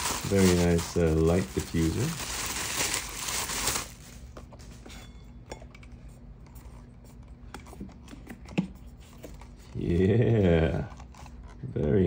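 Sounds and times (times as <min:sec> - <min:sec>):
plastic wrapping crinkling: 0:00.0 - 0:04.4.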